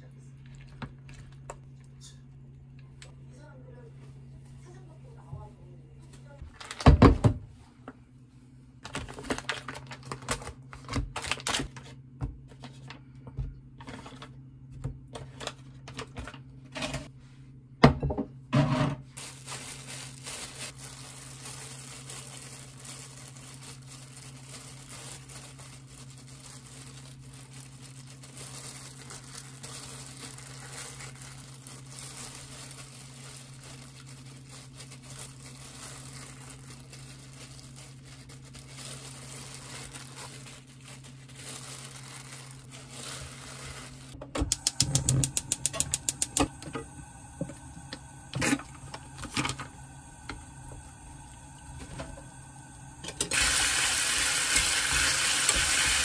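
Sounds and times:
plastic gloves crinkling: 8.7s - 12.1s, 19.2s - 56.0s
low steady hum: 12.2s - 54.6s
sharp clicks and knocks: 44.2s - 46.9s.

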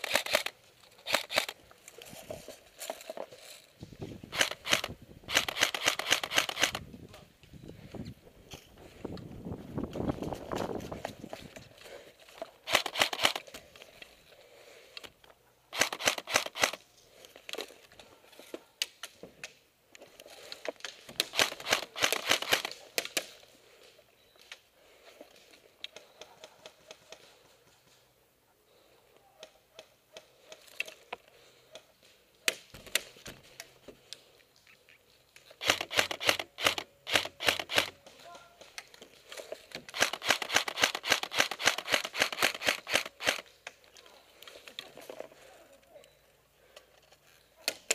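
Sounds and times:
airsoft guns firing bursts: 4.3s - 6.8s, 21.2s - 22.7s, 39.9s - 43.4s.

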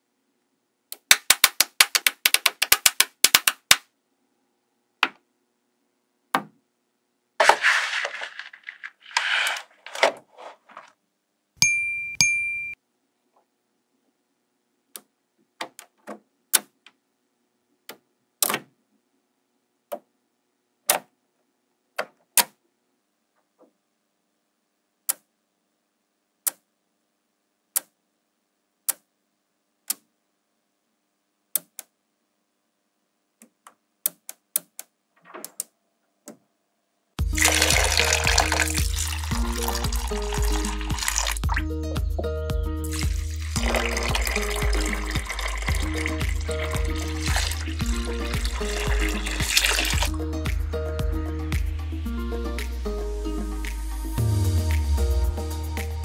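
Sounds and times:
magnetic balls clicking together: 0.9s - 3.9s
rattling clatter of balls: 7.4s - 11.0s
short ringing ding: 11.6s - 12.8s.

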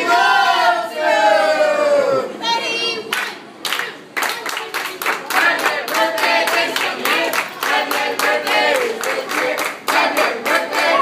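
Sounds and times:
voices chanting a cheer: 0.0s - 3.0s, 5.3s - 11.0s
group clapping in rhythm: 3.1s - 11.0s.

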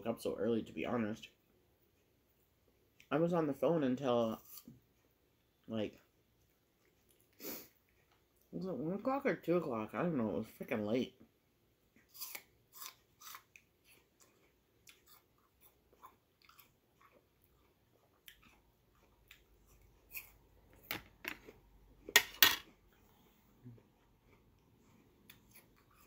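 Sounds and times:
person chewing crisp apple: 4.2s - 5.0s, 11.9s - 22.1s, 22.7s - 26.0s.

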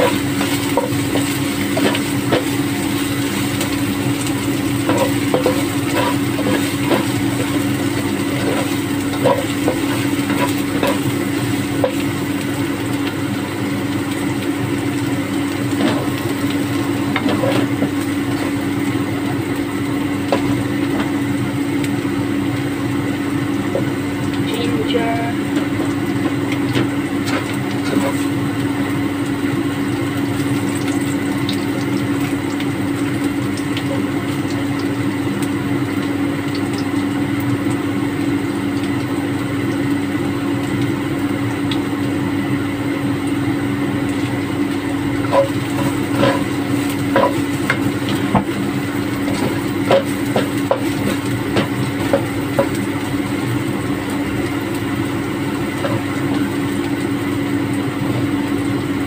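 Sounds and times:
spatula scraping a wok: 4.8s - 7.7s, 45.2s - 47.4s.

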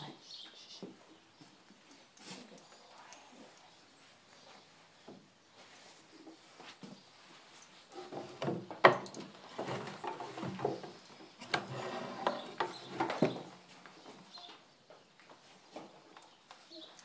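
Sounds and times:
saddle and tack knocking and creaking: 5.0s - 14.6s.

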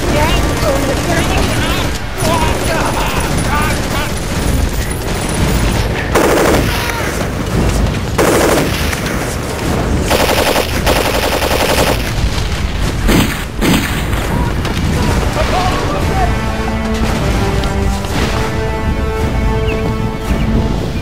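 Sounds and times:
gunfire: 0.0s - 15.9s
machine-gun bursts: 2.6s - 6.9s, 8.2s - 9.2s, 10.1s - 12.3s.

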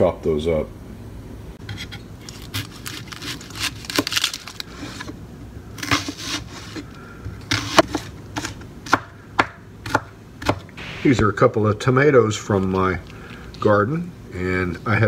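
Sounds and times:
knife slicing onion: 7.5s - 10.7s.

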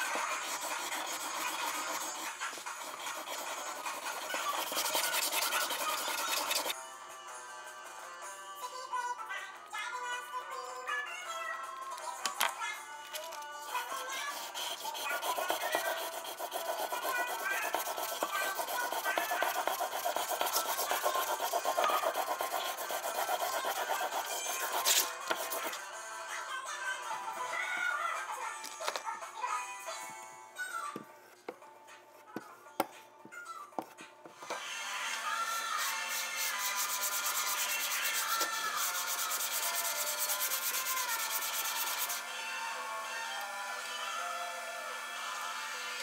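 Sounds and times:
small brush scrubbing: 0.0s - 6.8s, 13.1s - 25.8s, 35.7s - 42.2s
steel scraping on abrasive paper: 0.0s - 6.8s, 13.1s - 25.8s, 35.2s - 42.2s.

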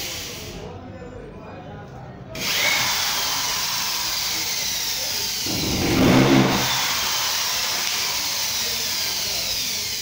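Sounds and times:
electric drill running: 5.4s - 7.8s.

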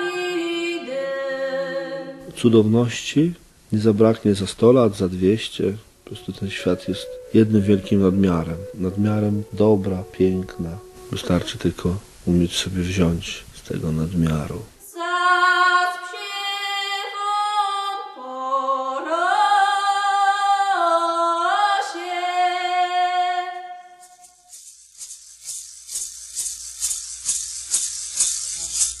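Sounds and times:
person singing long notes: 6.1s - 12.4s
hand rattle shaking: 23.9s - 29.0s.

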